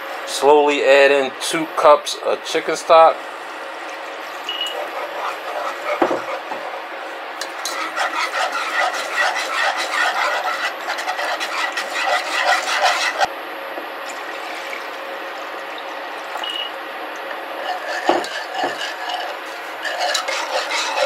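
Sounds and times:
whisk scraping a saucepan: 0:04.5 - 0:13.3, 0:17.6 - 0:21.0.

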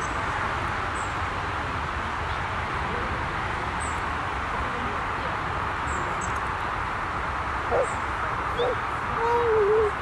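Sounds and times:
outdoor background hiss: 0:00.0 - 0:10.0.

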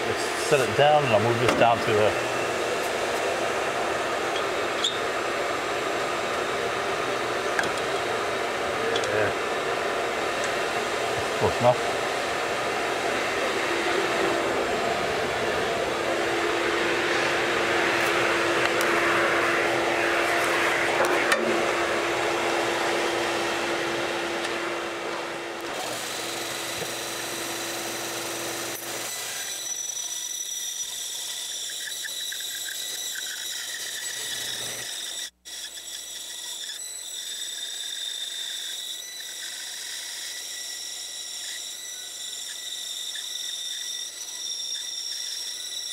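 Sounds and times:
bandsaw cutting wood: 0:00.0 - 0:25.0, 0:25.6 - 0:45.9
high whining tones: 0:00.0 - 0:26.1.

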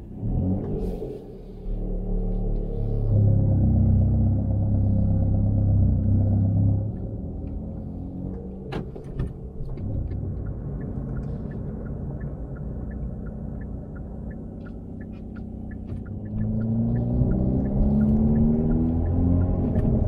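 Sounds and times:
car engine and exhaust rumble: 0:00.0 - 0:20.0
faint regular ticking: 0:09.4 - 0:19.6.

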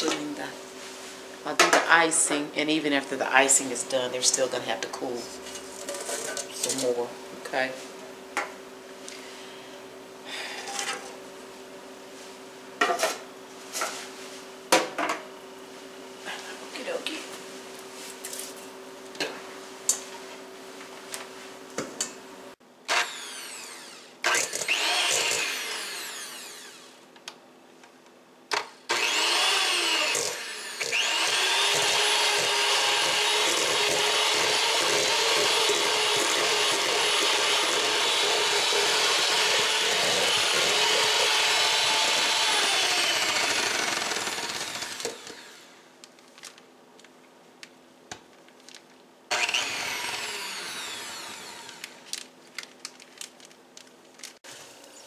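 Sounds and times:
electric hand mixer whipping: 0:22.9 - 0:27.0, 0:28.9 - 0:45.8, 0:49.3 - 0:52.0.

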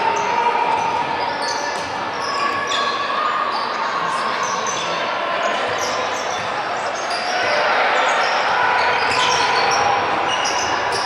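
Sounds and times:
sneaker squeaks: 0:00.0 - 0:11.0
basketball bouncing on court: 0:01.7 - 0:02.6.

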